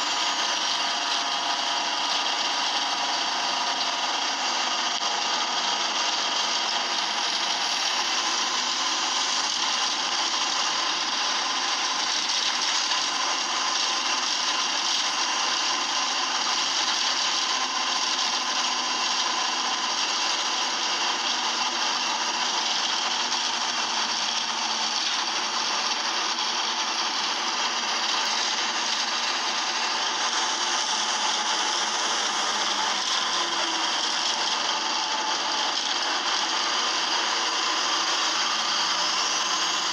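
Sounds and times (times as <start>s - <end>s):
bus engine running noise: 15.2s - 39.9s.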